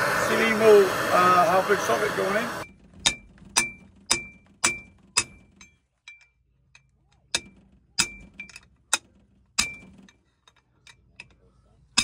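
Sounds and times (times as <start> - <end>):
hammer striking steel: 3.0 - 10.0.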